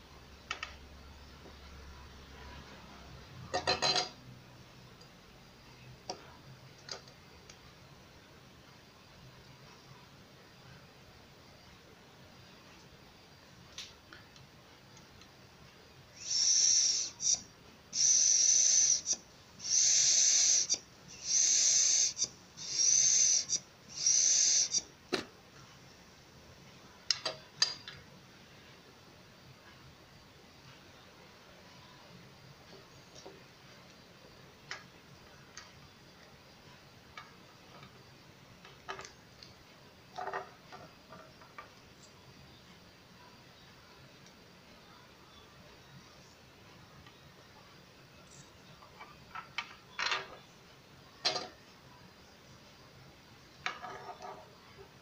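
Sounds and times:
hand air pump hissing: 16.2 - 17.4, 18.0 - 24.8.

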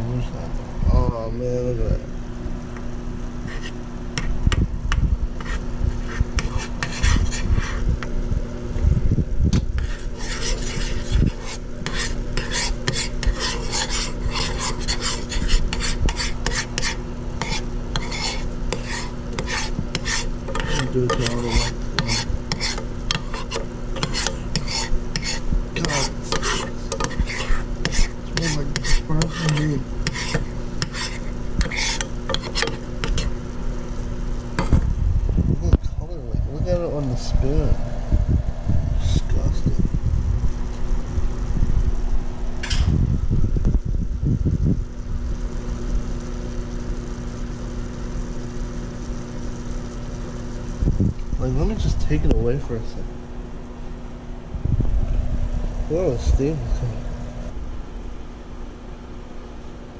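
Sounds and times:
steady hum: 0.0 - 59.9
bubbling sizzling: 2.2 - 35.0, 43.5 - 54.1
metal spoon scraping saucepan: 9.8 - 33.4.

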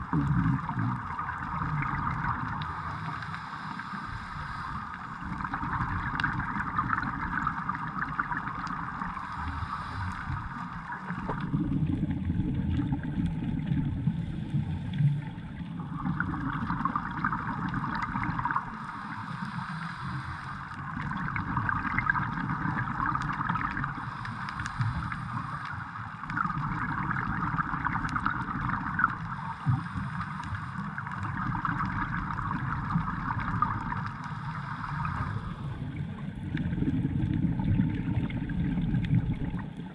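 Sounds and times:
bubbling rumble: 0.0 - 19.6, 20.7 - 39.9
regulator breathing underwater: 2.5 - 5.8, 9.0 - 11.5, 18.3 - 21.2, 23.7 - 26.2, 29.2 - 31.4, 34.0 - 36.2.

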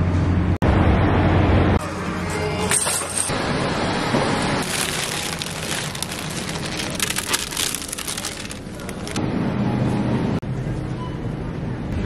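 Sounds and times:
cellophane crinkling: 4.6 - 9.2.

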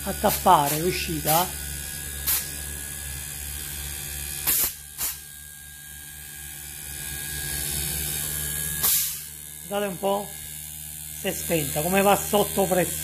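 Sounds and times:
air hissing from tube: 0.0 - 1.5, 2.2 - 2.6, 4.4 - 5.3, 8.2 - 9.3
compressor electric hum: 0.0 - 13.0.

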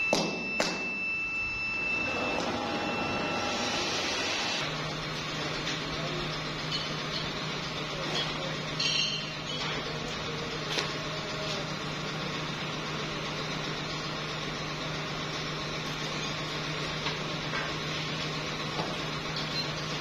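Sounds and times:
high steady tone: 0.0 - 4.7
machinery low hum: 0.0 - 20.0.

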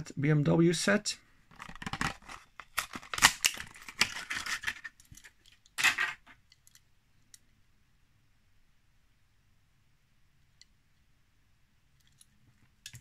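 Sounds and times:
plastic blister crackling and tearing: 1.5 - 5.4
plastic ripping: 1.6 - 5.0.

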